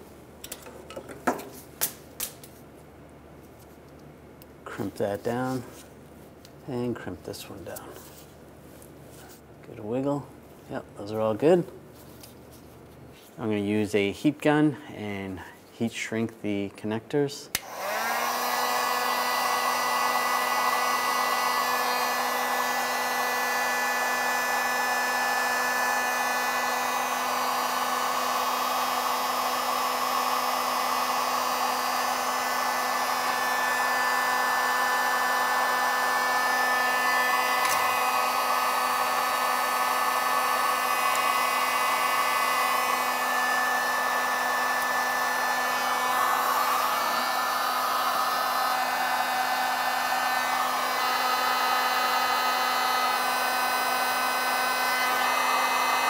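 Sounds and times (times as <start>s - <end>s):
heat gun blowing air: 17.5s - 56.0s.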